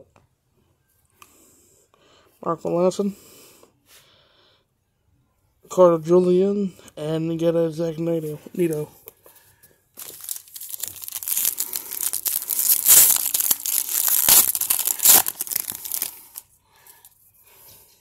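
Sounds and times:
foil wrapper tearing and crinkling: 10.0s - 16.4s.

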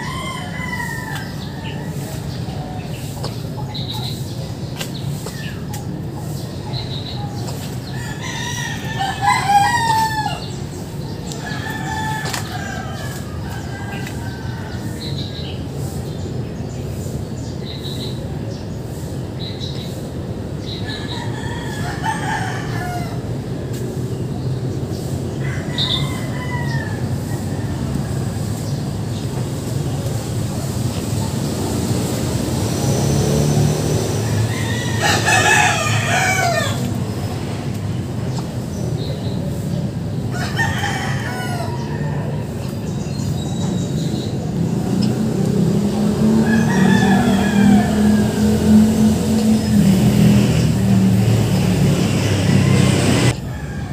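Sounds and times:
rooster crowing: 0.0s - 2.1s, 7.8s - 10.6s, 11.3s - 15.3s, 20.8s - 23.3s, 25.4s - 28.4s, 33.6s - 37.0s, 40.3s - 42.6s, 45.6s - 53.9s.

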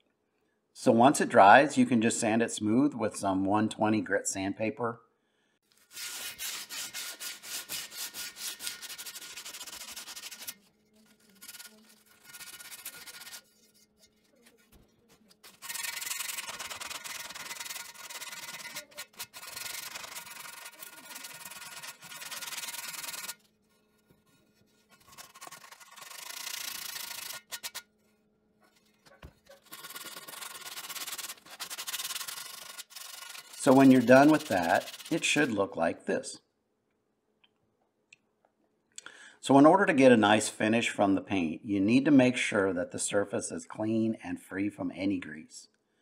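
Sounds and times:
sandpaper scratching back and forth: 5.8s - 27.9s, 28.7s - 35.6s.

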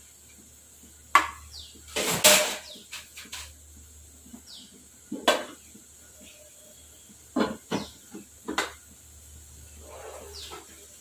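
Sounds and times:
bird chirping: 9.7s - 10.8s.

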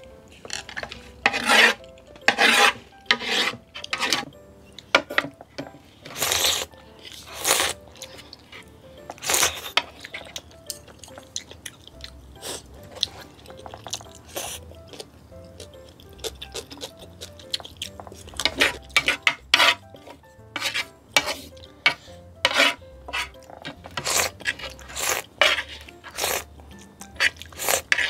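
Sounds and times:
wooden spoon scraping a plate: 0.3s - 4.3s, 4.9s - 10.4s, 18.0s - 26.5s, 27.2s - 28.0s
slurping and chewing: 6.0s - 28.0s
wooden chopsticks clicking: 13.0s - 20.2s.

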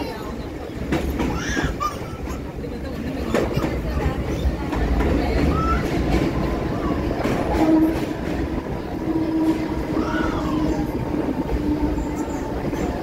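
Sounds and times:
train rumble: 0.0s - 13.0s
wheels clattering over rail joints: 0.0s - 13.0s.

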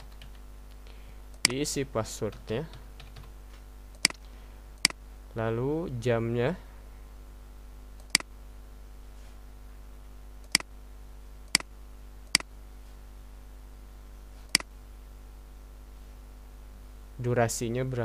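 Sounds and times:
low electrical hum: 0.0s - 18.0s
computer mouse clicks: 8.0s - 8.3s.

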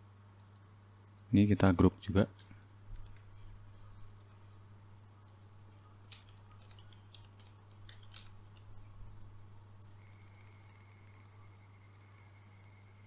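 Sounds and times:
low electrical hum: 0.0s - 13.0s
keyboard typing: 2.3s - 3.3s, 5.2s - 8.8s, 9.8s - 11.5s
mouse clicks: 9.8s - 11.4s.

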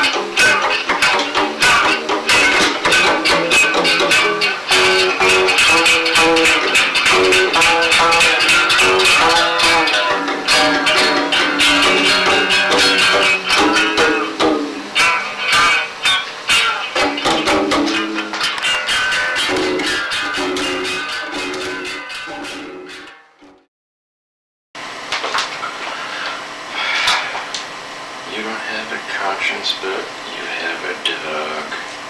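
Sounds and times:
live band with strummed guitar: 0.0s - 23.2s.

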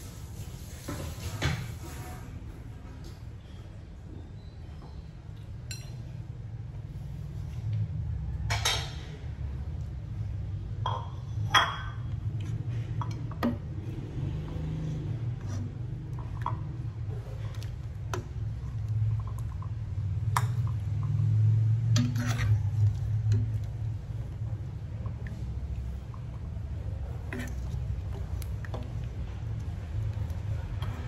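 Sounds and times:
metal ladle clinking against pot: 21.9s - 23.8s.

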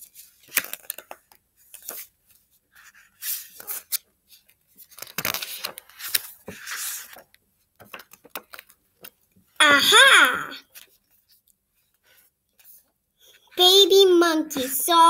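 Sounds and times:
book pages turning: 0.0s - 9.4s.

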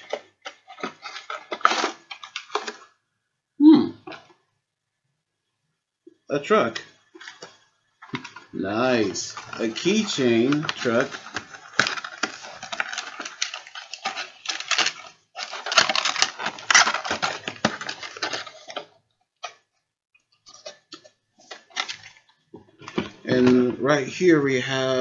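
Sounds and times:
plastic bag crinkling: 0.0s - 3.0s, 6.7s - 19.6s, 20.4s - 23.4s.

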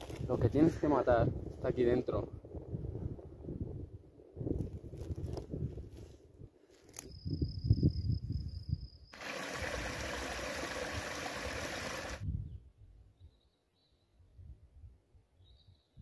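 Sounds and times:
wind buffeting microphone: 0.0s - 6.1s, 9.6s - 13.0s
stream rushing over branches: 9.2s - 12.2s.

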